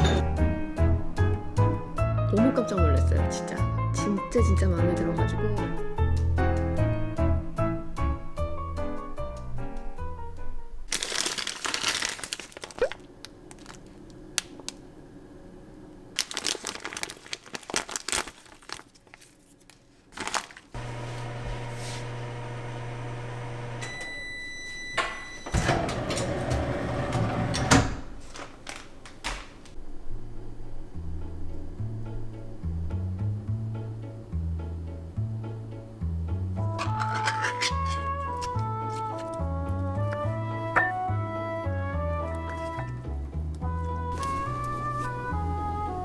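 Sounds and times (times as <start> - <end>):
background music: 0.0 - 11.1, 29.9 - 46.0
plastic food bag crinkling: 10.9 - 14.8, 16.1 - 20.8, 28.3 - 29.2, 36.8 - 39.4
microwave oven humming: 12.6 - 16.2, 20.8 - 33.7
microwave beeps: 23.6 - 26.0.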